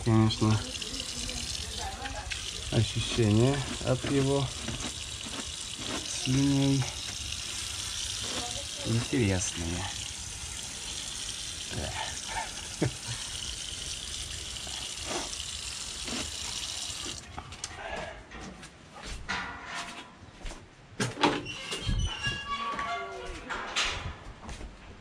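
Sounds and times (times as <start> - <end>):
tap water running into basin: 0.0 - 17.3.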